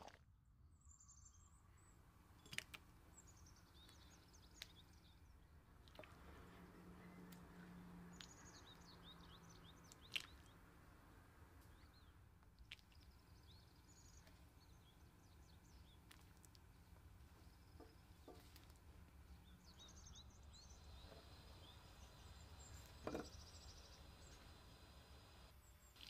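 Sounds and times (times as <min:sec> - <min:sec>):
faint birds chirping: 0:00.6 - 0:26.0
low steady hum: 0:00.7 - 0:26.0
soft knock: 0:23.0 - 0:23.4.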